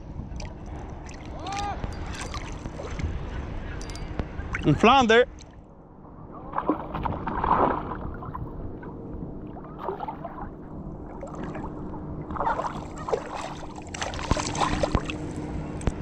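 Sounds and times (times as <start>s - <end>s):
fish splashing in water: 9.5s - 11.7s, 12.3s - 15.4s.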